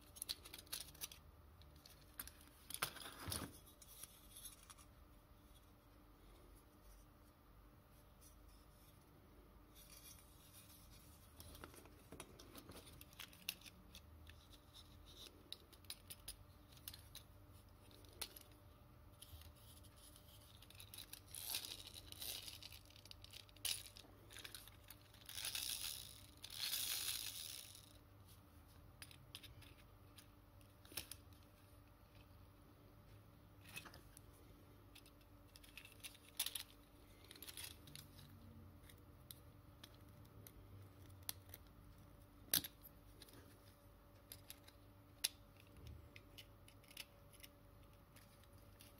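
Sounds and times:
metal toy car clicks and scrapes: 0:00.0 - 0:04.8, 0:19.2 - 0:28.0, 0:35.0 - 0:40.1.

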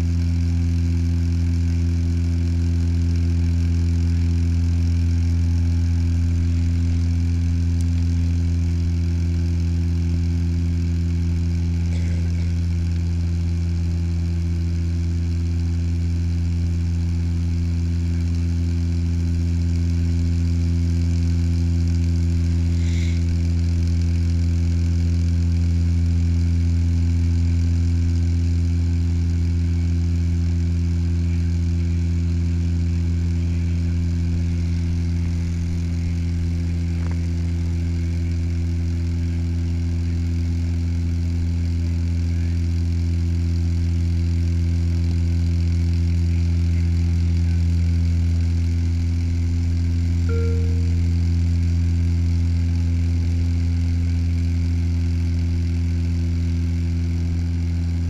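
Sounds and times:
propeller engine drone: 0:00.0 - 0:26.0, 0:32.6 - 0:39.3, 0:50.1 - 0:51.6
faint brief chirps: 0:50.3 - 0:51.1.

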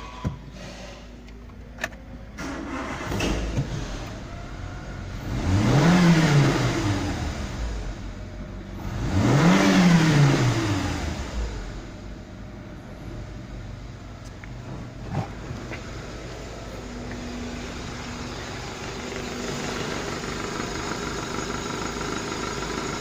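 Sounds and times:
car engine starting and revving: 0:01.8 - 0:23.0.

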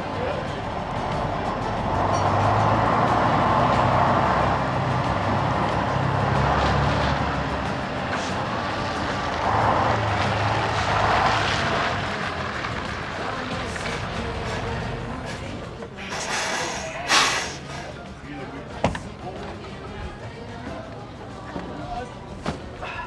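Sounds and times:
lorry engine humming: 0:00.0 - 0:23.0.

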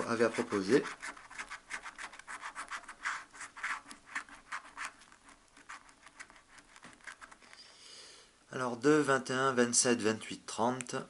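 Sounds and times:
scratch card rasping: 0:00.0 - 0:07.7.

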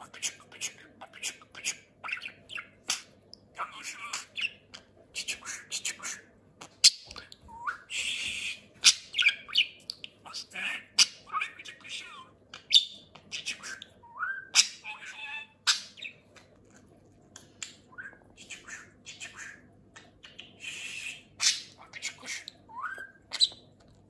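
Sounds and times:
budgerigar chattering: 0:14.5 - 0:16.2.

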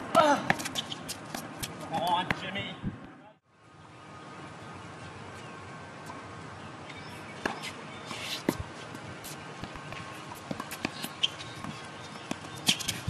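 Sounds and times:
racket hitting tennis ball: 0:00.1 - 0:02.5, 0:09.6 - 0:13.0
tennis ball bouncing: 0:00.1 - 0:02.6, 0:07.4 - 0:07.8, 0:09.6 - 0:13.0
footsteps on court: 0:07.4 - 0:13.0.

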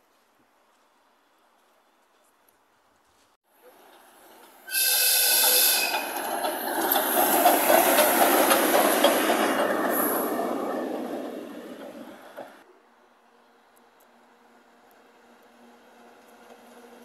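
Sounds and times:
locomotive rolling and hissing: 0:03.5 - 0:12.7, 0:13.3 - 0:17.0
steam locomotive whistle: 0:04.6 - 0:06.2.

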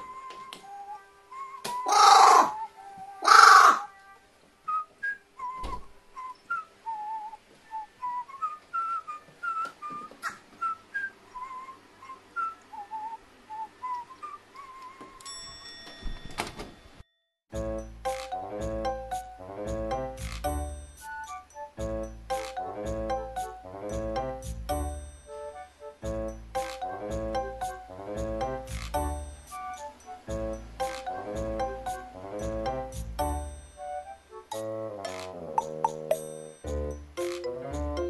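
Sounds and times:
whistled melody: 0:00.0 - 0:01.9, 0:03.9 - 0:15.5, 0:17.6 - 0:38.0
crow cawing: 0:01.9 - 0:02.6, 0:03.2 - 0:03.9
ringing chime-like tone: 0:15.2 - 0:17.4, 0:36.1 - 0:37.0.

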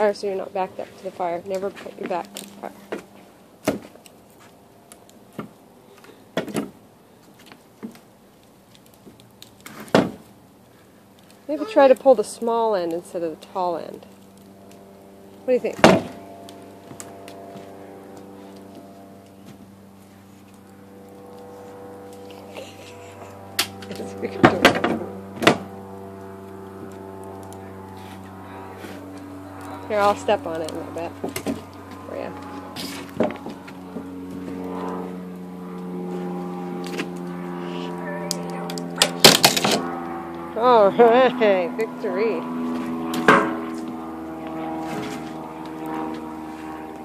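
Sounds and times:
branch knocking and cracking on deck: 0:01.6 - 0:08.1, 0:08.7 - 0:10.3, 0:15.7 - 0:19.7, 0:23.6 - 0:29.8, 0:31.2 - 0:35.0, 0:38.7 - 0:40.0.

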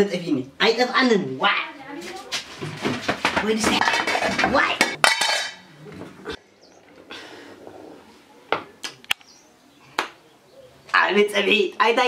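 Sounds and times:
metal pot lid clattering on tiles: 0:03.8 - 0:05.6
sharp clicks: 0:08.8 - 0:09.3.

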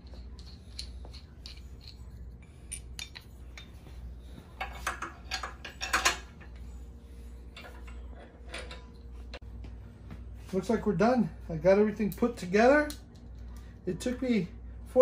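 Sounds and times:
metal parts clinking: 0:00.0 - 0:03.8, 0:04.6 - 0:06.4.

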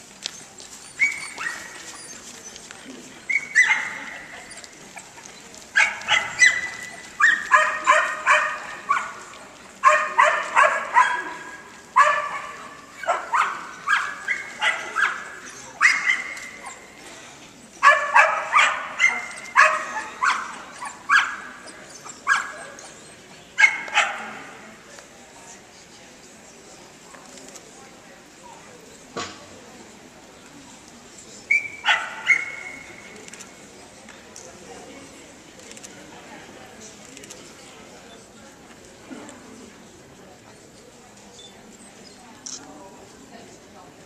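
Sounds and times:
dog barking: 0:05.8 - 0:09.2, 0:09.8 - 0:15.2, 0:17.8 - 0:20.5, 0:23.6 - 0:24.4, 0:31.8 - 0:32.6.

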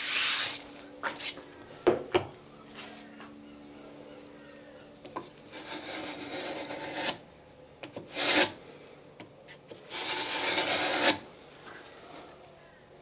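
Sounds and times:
hand plane shaving wood: 0:05.5 - 0:07.2, 0:08.1 - 0:08.6, 0:09.9 - 0:11.2.

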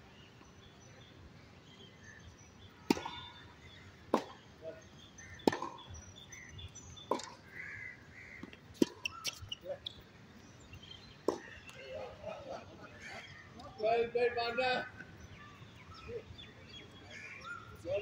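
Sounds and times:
tennis ball bouncing on court: 0:02.9 - 0:03.2, 0:04.1 - 0:04.4, 0:05.4 - 0:05.9, 0:07.1 - 0:07.4, 0:08.4 - 0:10.0, 0:11.2 - 0:11.8
tennis racket striking ball: 0:05.4 - 0:05.8.

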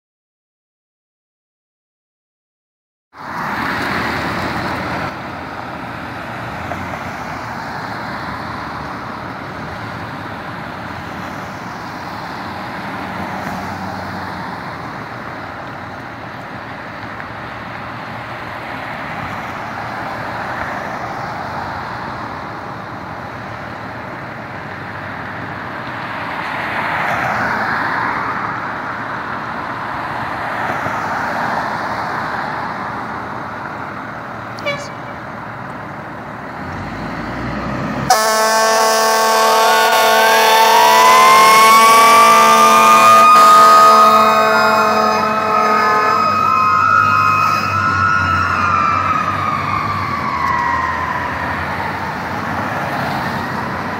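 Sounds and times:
passing traffic: 0:03.1 - 0:53.9
horn blast: 0:34.6 - 0:35.2, 0:38.1 - 0:46.4
siren rising: 0:38.1 - 0:53.9.

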